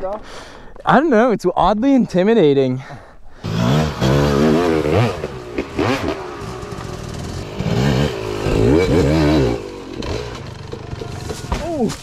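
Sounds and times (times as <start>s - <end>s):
dirt bike engine revving: 3.4s - 11.5s.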